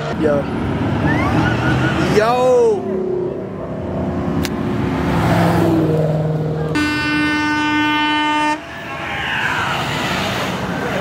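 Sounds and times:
car engines and traffic: 0:00.0 - 0:11.0
vehicle horn steady note: 0:06.7 - 0:08.7.

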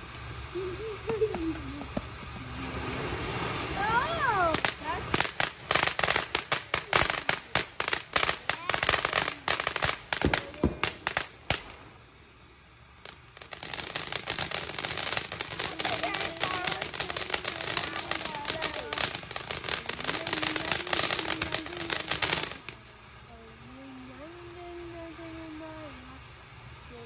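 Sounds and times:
fireworks crackling: 0:00.0 - 0:27.0
firework bangs: 0:00.3 - 0:23.2.

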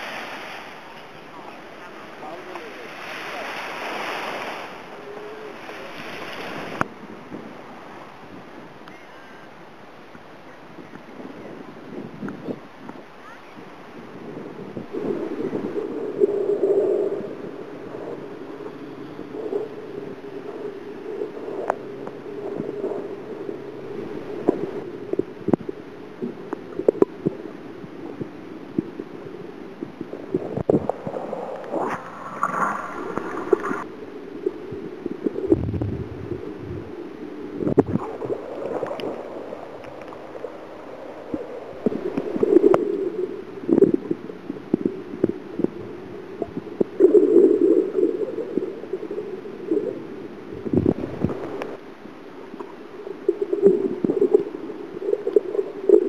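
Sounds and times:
muffled underwater gurgling: 0:14.1 - 0:51.8, 0:52.5 - 0:56.0.

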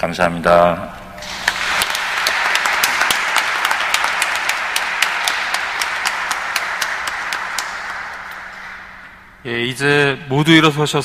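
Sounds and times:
people applauding in a church: 0:01.2 - 0:09.4.

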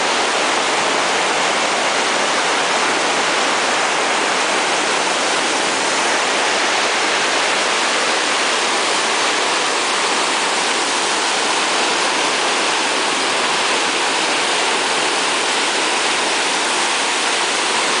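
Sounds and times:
water rushing over weir: 0:00.0 - 0:18.0.

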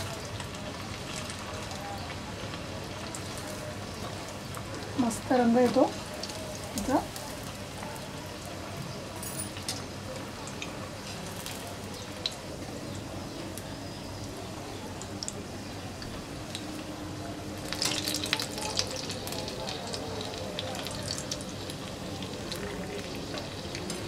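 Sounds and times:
food sizzling in hot oil: 0:00.0 - 0:12.6, 0:17.5 - 0:24.0.

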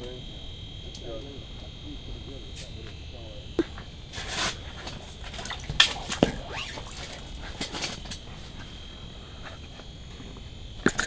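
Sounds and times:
clothing rustling: 0:04.1 - 0:08.7.

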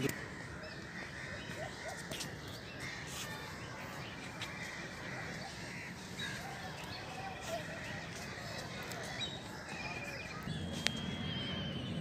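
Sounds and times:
bird chirps: 0:08.4 - 0:12.0.

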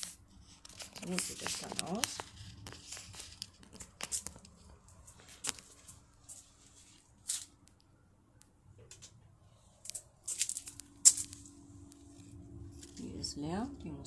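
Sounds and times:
leaves rustling against camera: 0:00.0 - 0:07.7, 0:09.8 - 0:13.4.

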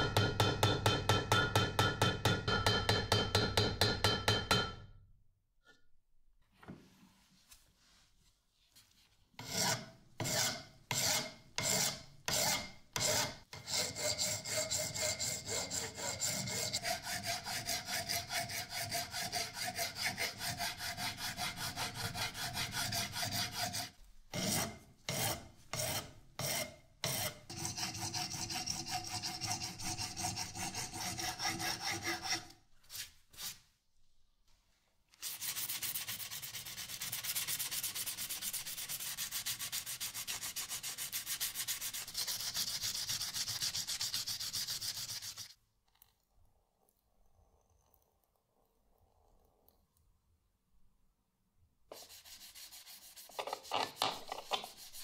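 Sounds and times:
hand file rasping on metal: 0:09.4 - 0:32.6, 0:35.4 - 0:45.6, 0:51.9 - 0:55.0.

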